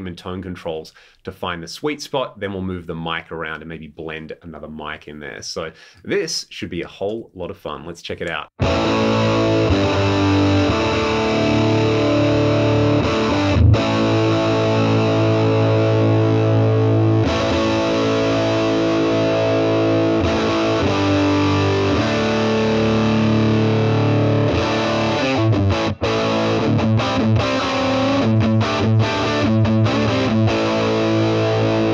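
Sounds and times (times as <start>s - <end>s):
distorted electric guitar chords: 8.6s - 31.9s.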